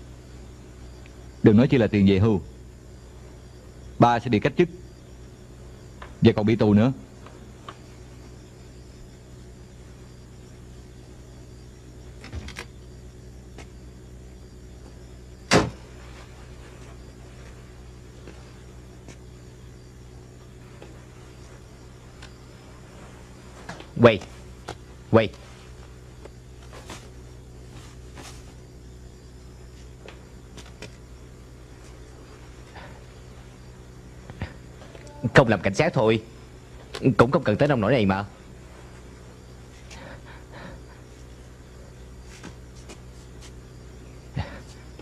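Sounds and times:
steady low hum: 0.0 - 45.0
car door slamming shut: 15.5 - 15.8
faint rustles: 15.7 - 35.1.

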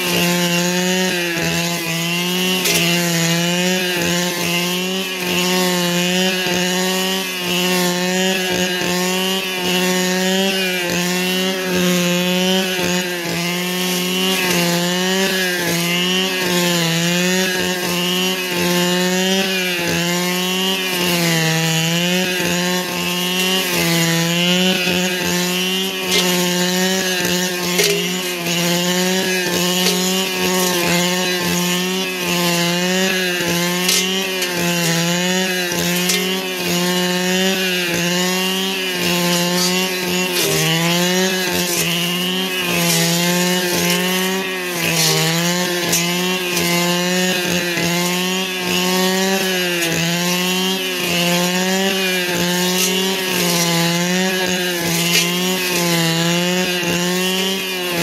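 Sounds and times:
brushcutter engine at high revs: 0.0 - 58.0.

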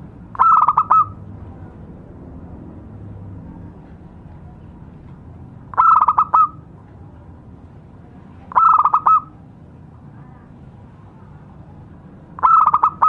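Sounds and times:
dove cooing: 0.4 - 1.2, 5.7 - 6.6, 8.5 - 9.3, 12.4 - 13.0.

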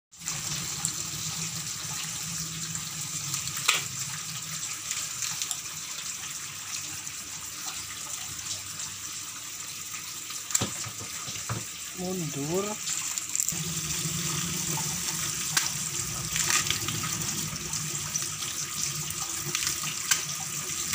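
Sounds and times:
water splashing over vegetables: 10.4 - 20.9
tap running into metal sink: 10.5 - 11.8.

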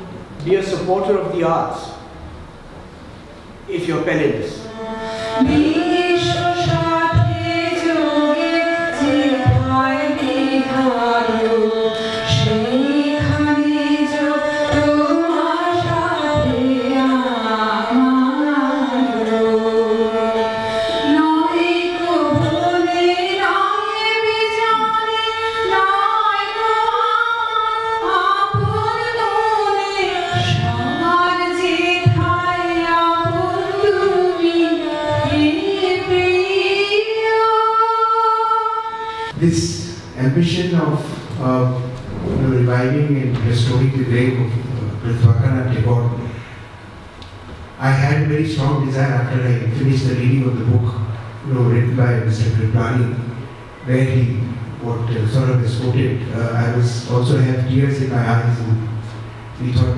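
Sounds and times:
bowed strings: 0.0 - 36.9, 38.8 - 46.5
woman singing: 4.7 - 39.3.

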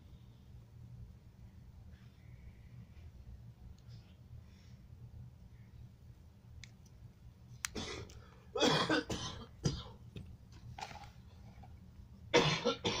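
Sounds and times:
person coughing: 7.7 - 10.0, 12.3 - 13.0.

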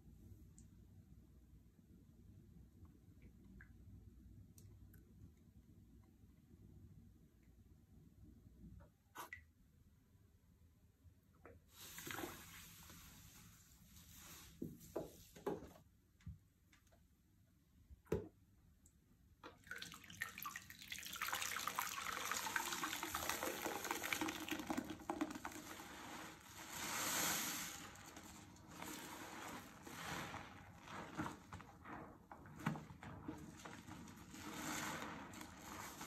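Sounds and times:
foam dripping into basin: 19.4 - 36.0
sponge squelching in sudsy water: 19.5 - 36.0.

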